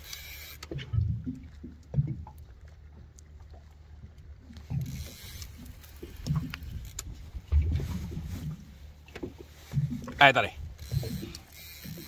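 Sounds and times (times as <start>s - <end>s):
water slapping against boat hull: 0.6s - 12.0s
wind on microphone: 6.2s - 8.8s.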